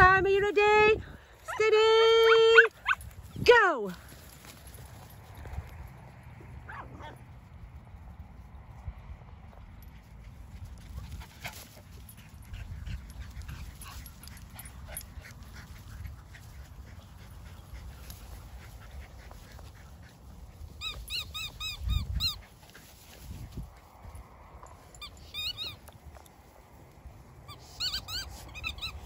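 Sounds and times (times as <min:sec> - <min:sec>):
dog yipping: 0:02.2 - 0:03.1, 0:20.8 - 0:22.5, 0:25.0 - 0:25.9, 0:27.5 - 0:29.0
dogs running through grass: 0:02.4 - 0:29.0
wind rumble on microphone: 0:02.7 - 0:03.6, 0:04.8 - 0:27.5.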